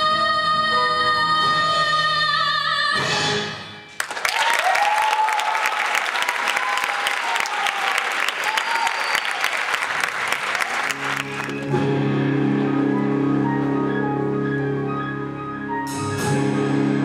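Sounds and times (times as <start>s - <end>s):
audience applause: 4.0s - 11.7s
pit band playing: 10.3s - 17.0s.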